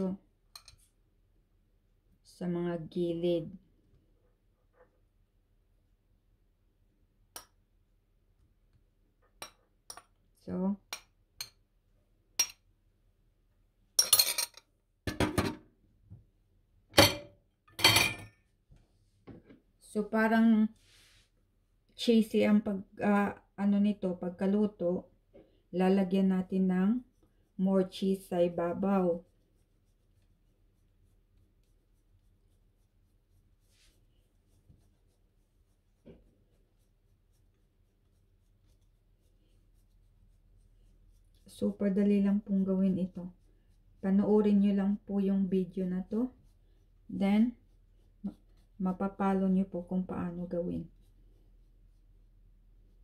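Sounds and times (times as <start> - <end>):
dishes and spoon clinking: 0.6 - 0.8, 12.4 - 12.6, 14.0 - 15.6, 17.0 - 18.4.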